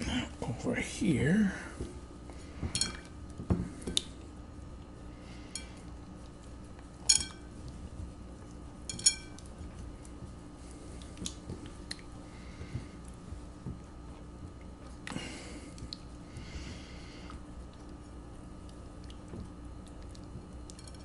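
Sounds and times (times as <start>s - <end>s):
glass bowl clinking: 2.8s - 3.1s, 7.0s - 7.5s, 8.9s - 9.4s.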